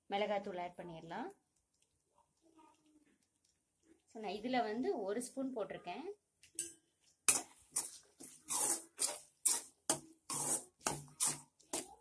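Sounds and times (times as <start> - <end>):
spatula scraping a steel pan: 7.3 - 12.0.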